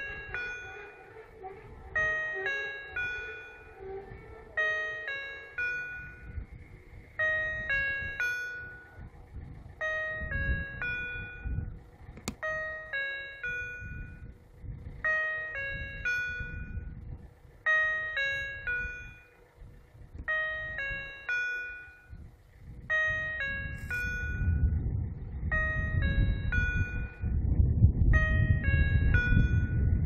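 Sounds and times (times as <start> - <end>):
level crossing electronic bell: 7.2 - 9.0, 12.4 - 14.2, 15.1 - 16.8, 17.7 - 19.4, 20.3 - 22.2, 22.9 - 24.6, 25.5 - 27.3, 28.2 - 30.0
low rumble: 13.5 - 17.7, 22.1 - 30.0.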